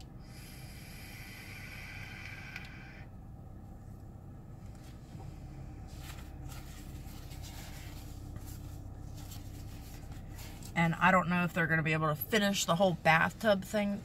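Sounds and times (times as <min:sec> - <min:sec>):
low car hum: 0:00.0 - 0:14.0
breathy exhale: 0:00.2 - 0:03.1
vape coil hissing and whistling: 0:00.4 - 0:03.1.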